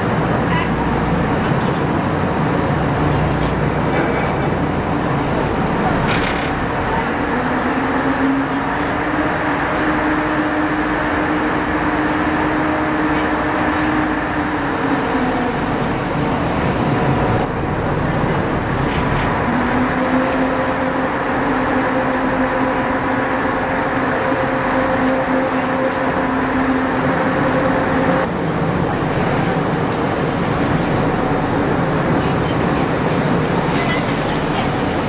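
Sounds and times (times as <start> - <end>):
ship engines droning: 0.0 - 35.0
humming tone: 24.3 - 31.2.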